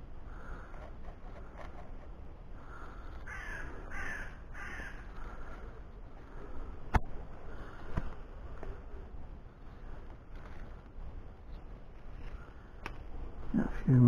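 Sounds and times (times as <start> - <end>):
crow cawing: 0.3 - 0.7, 2.6 - 5.5.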